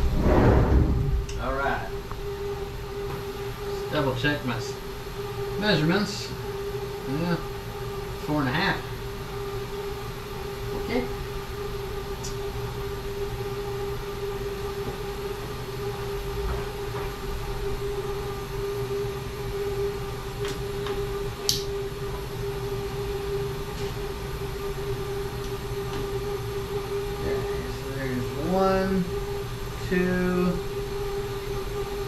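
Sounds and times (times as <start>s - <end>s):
low rumble: 0.0s - 2.1s
machine pumps and fans humming: 0.0s - 32.0s.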